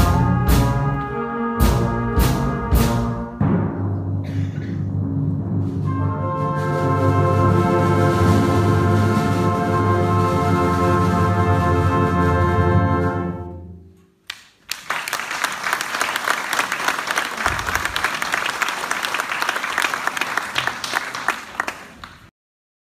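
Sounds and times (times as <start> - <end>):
brass band held chord: 0.0 - 13.9
audience applause: 14.3 - 22.3.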